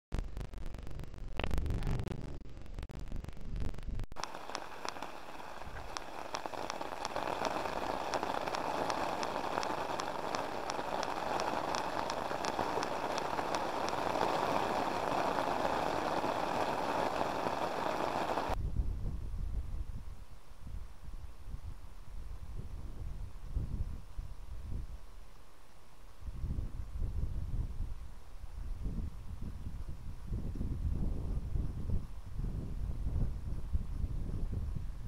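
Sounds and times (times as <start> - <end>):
heavy rain on umbrella: 4.2 - 18.6.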